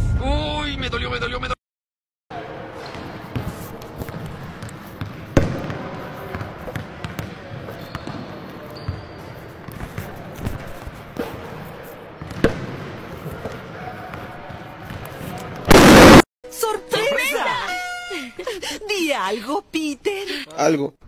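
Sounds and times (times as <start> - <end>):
basketballs bouncing on wooden floor: 3.3 - 8.3, 12.2 - 15.0.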